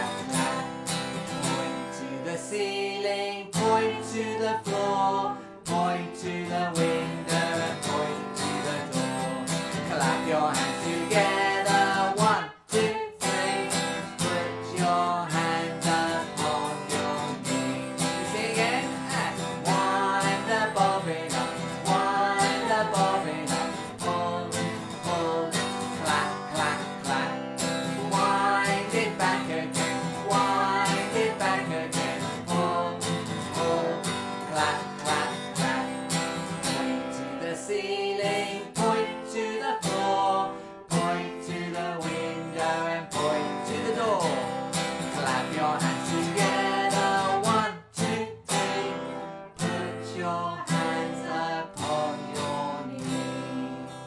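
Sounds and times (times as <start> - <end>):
acoustic guitar strumming: 0.0 - 54.0
man and woman singing: 0.0 - 54.0.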